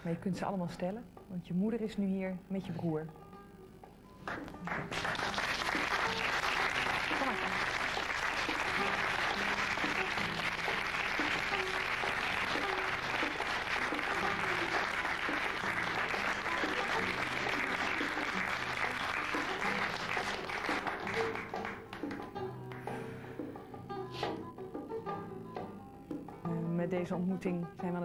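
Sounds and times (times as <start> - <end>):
soft background music: 0.0 - 28.0
audience applauding: 4.2 - 22.9.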